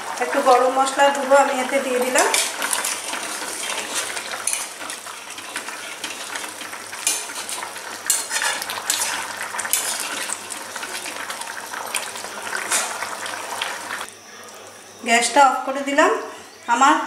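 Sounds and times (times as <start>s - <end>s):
curry bubbling and sizzling: 0.0s - 14.9s
spatula scraping metal pan: 2.2s - 10.3s.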